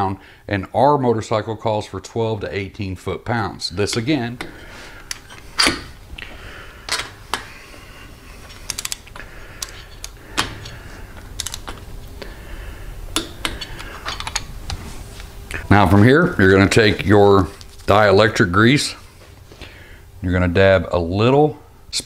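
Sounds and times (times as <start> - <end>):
torque wrench ratcheting clicks: 11.4 - 11.7.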